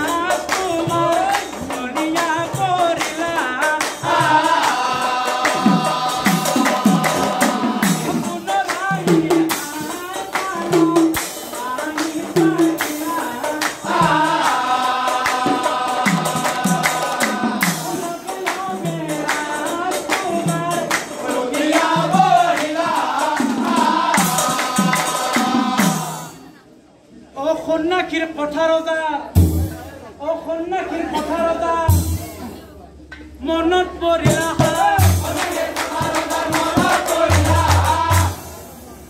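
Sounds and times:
group voices singing long notes: 2.4s - 26.6s, 34.3s - 39.0s.

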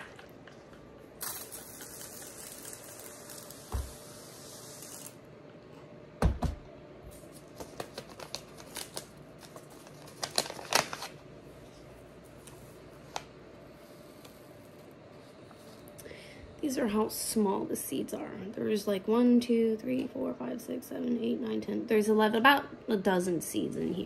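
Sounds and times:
pressure sprayer hissing: 1.2s - 5.2s
thump: 3.7s - 4.0s
paper packet crinkling: 7.2s - 11.2s.

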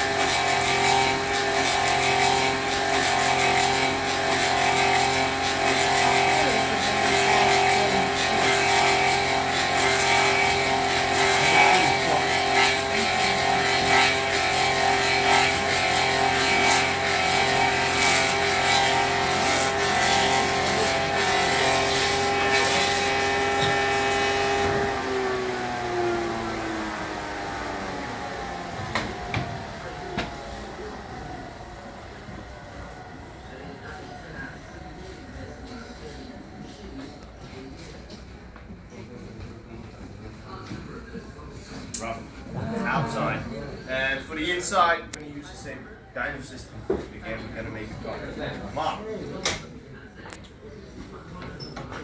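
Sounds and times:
cutter head rasping into wood: 0.0s - 24.9s
electric motor hum: 0.0s - 35.0s.

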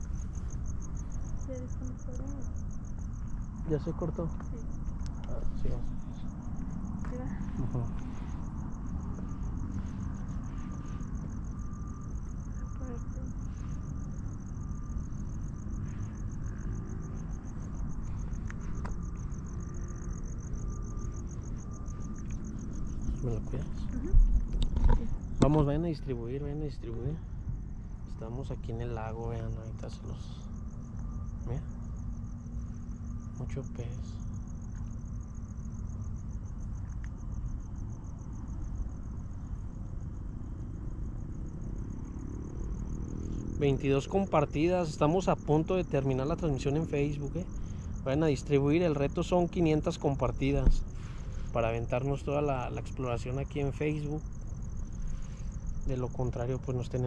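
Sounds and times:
crickets chirping: 0.0s - 57.0s.

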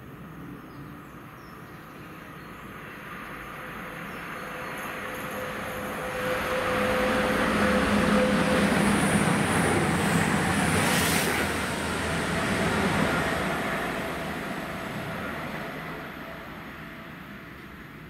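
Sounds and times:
diesel train passing: 0.0s - 18.0s.

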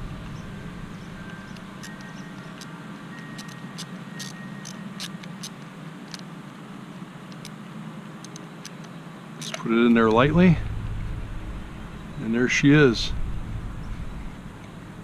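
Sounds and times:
light clicks of screw and nut: 1.3s - 6.3s, 7.3s - 7.6s, 8.2s - 10.2s.

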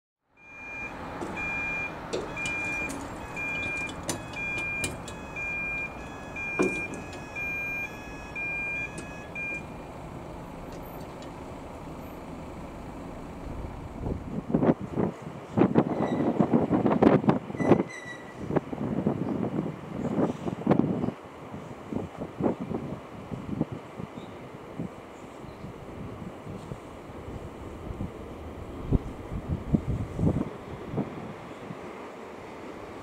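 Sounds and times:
level crossing alarm beeping: 0.4s - 9.9s
electric train rumbling: 0.4s - 33.0s.

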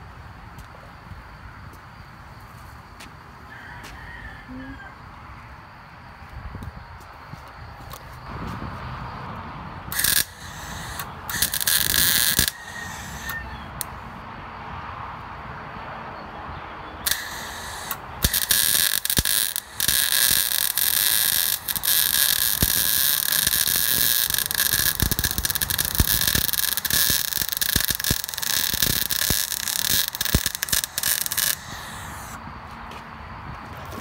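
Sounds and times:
welder arc crackling and hissing: 9.9s - 13.4s, 17.1s - 32.4s.

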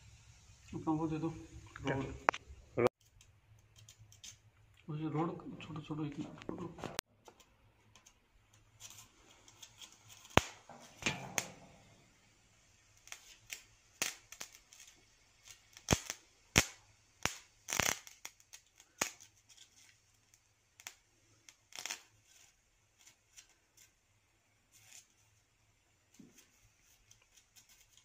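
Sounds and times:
welding arc crackling and popping: 5.7s - 24.0s, 24.6s - 25.5s.

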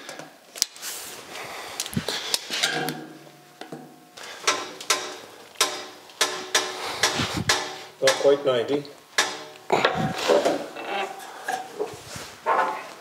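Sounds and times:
metal knocks and clanks: 2.6s - 11.9s.

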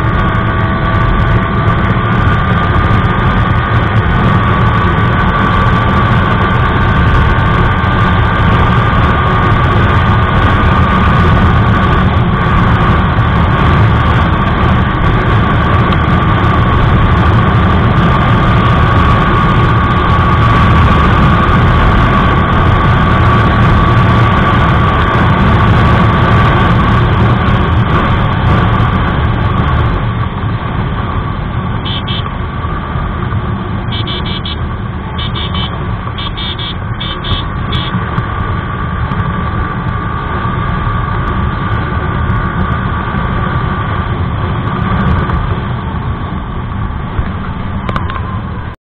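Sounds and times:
motorcycle engine running: 0.0s - 48.8s
wind noise on microphone: 0.0s - 48.8s
vehicle horn short beeps: 31.8s - 32.3s, 33.9s - 38.0s.

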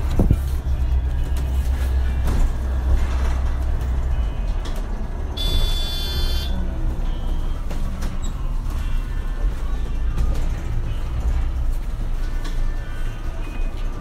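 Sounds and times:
bus engine rumble: 0.0s - 14.0s
high electronic beep: 5.4s - 7.6s.

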